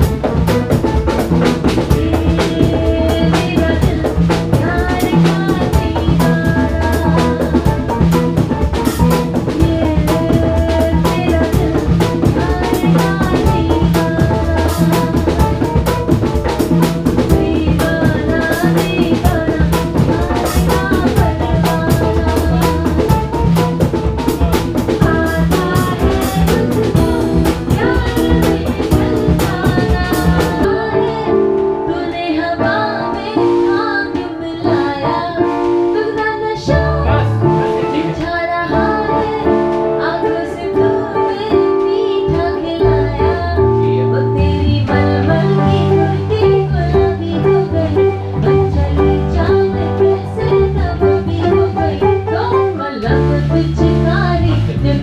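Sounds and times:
conga drums: 0.0s - 55.0s
live band playing: 0.0s - 55.0s.

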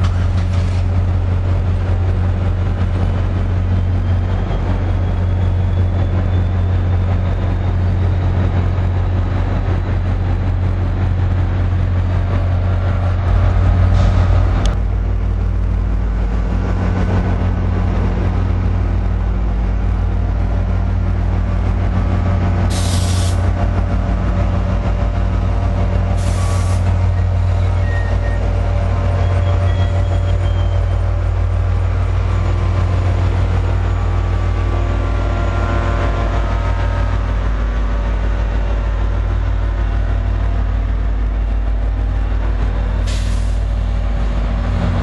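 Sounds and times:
diesel locomotive engine humming: 0.0s - 45.0s
brake air hissing: 22.7s - 23.4s, 26.2s - 26.9s, 43.1s - 43.8s.

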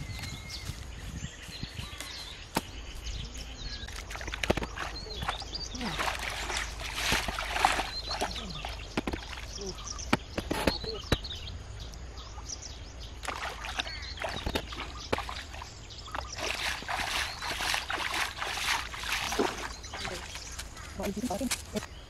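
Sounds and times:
pond water splashing: 3.8s - 11.0s, 13.0s - 21.6s.

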